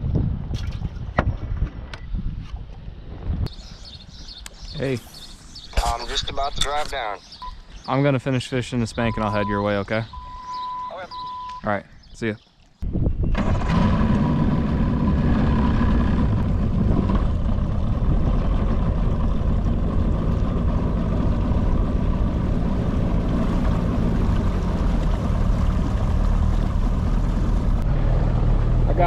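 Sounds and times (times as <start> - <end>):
outboard motor running: 13.4 - 27.8.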